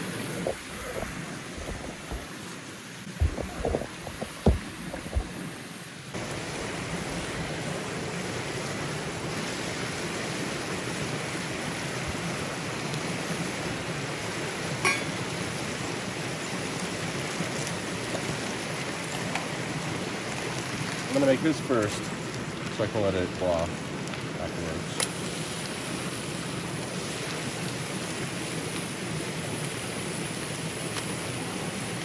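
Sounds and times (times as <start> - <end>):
flowing water rushing: 0.0 - 32.0
knocks and clinks: 14.8 - 15.2.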